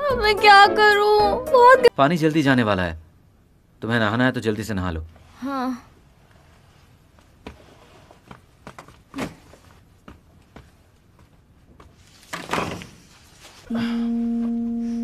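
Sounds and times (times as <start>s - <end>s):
footsteps in a room: 6.5s - 13.7s.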